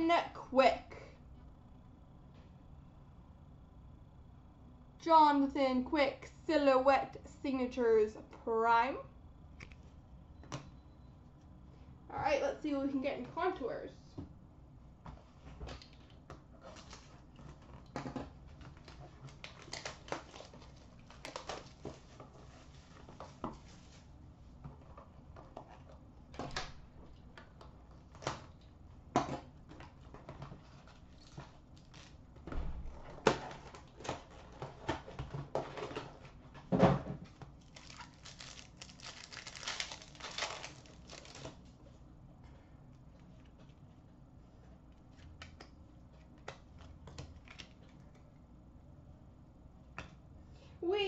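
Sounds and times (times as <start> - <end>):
foil wrapper crinkling: 18.7 - 23.1, 30.9 - 32.2, 37.5 - 41.7.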